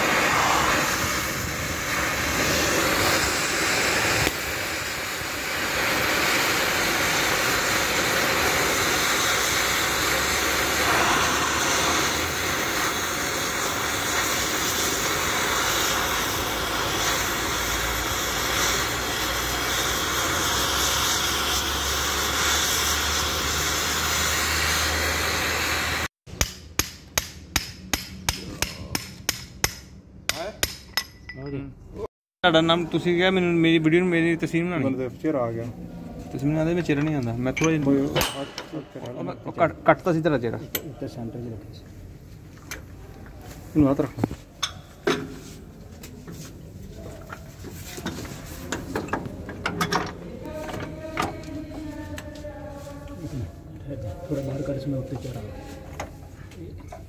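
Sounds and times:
cutting torch flame hissing: 0.0 - 26.2.

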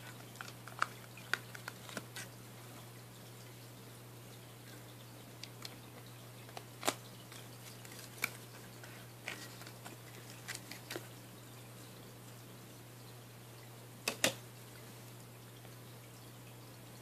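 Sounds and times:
plastic clicks and taps: 14.0 - 14.4.

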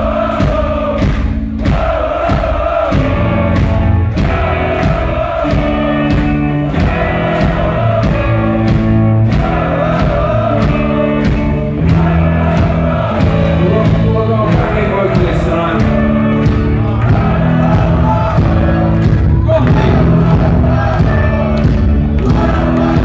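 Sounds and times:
drums hitting: 0.0 - 23.0
rock band playing: 0.0 - 23.0
person singing: 9.4 - 23.0.

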